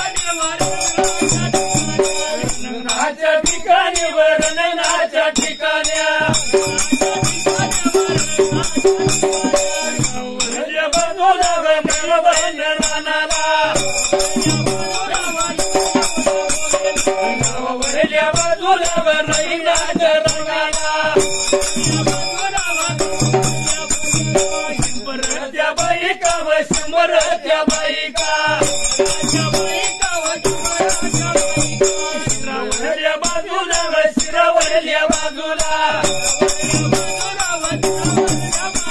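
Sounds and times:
dhol drum: 0.0 - 38.9
men chanting: 0.0 - 38.9
percussion jingling: 0.0 - 38.9.

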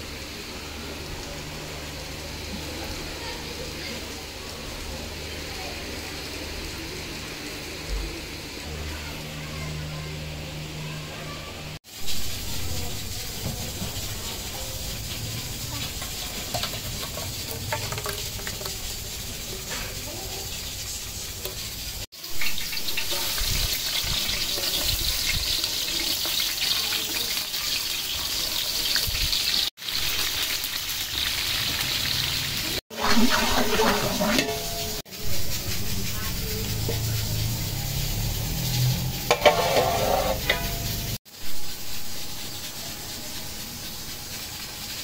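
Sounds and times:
onions sizzling in hot oil: 0.0 - 45.0
pot bubbling on the boil: 11.8 - 45.0
metal spoon scraping a pot: 33.0 - 35.0, 39.1 - 41.2.

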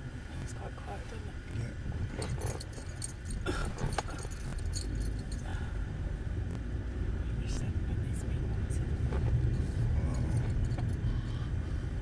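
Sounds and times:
car road and engine rumble: 0.0 - 12.0
light metallic jingling: 2.1 - 5.8, 9.4 - 11.1.

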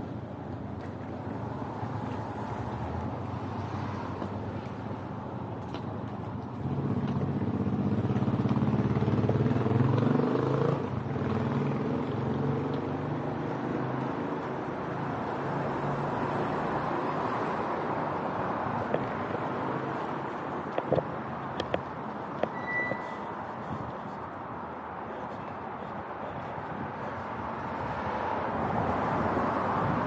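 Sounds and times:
traffic noise: 0.0 - 30.0
vehicle engine passing close: 6.6 - 15.0.

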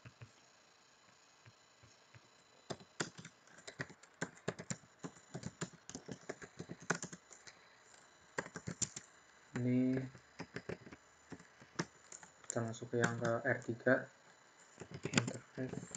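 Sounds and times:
computer keyboard typing: 1.8 - 7.6, 8.4 - 13.8, 14.7 - 15.9.

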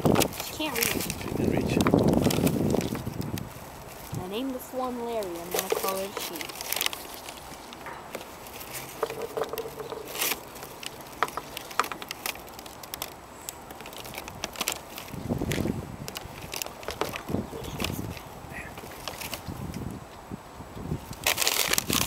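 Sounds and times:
rustling: 0.0 - 19.9, 21.1 - 22.0
bill pecking on wooden boards: 7.7 - 12.6
bird bill tapping on boards: 8.9 - 10.4, 11.1 - 12.1.

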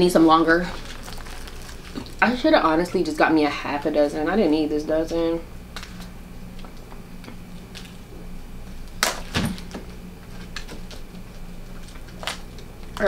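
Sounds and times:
crab shell cracking: 0.7 - 2.2, 8.9 - 13.0.

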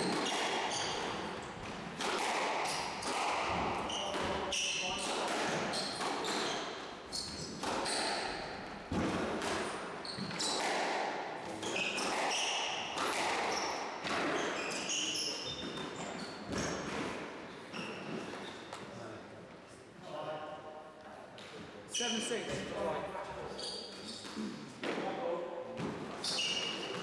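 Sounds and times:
squash ball smacks: 0.0 - 6.6, 8.9 - 14.4
shoes squeaking on wooden floor: 0.0 - 10.8, 11.5 - 18.9, 21.9 - 24.6, 26.0 - 27.0.

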